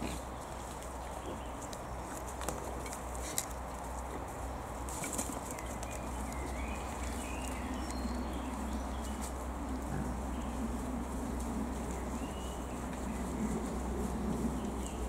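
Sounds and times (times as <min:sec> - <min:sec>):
boars grunting: 0:00.0 - 0:00.3
steady outdoor rumble: 0:00.0 - 0:15.0
bird chirps: 0:05.4 - 0:09.3.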